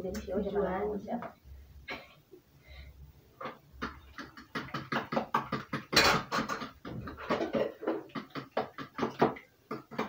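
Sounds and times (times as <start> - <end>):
utensil beating batter in bowl: 3.5 - 10.0.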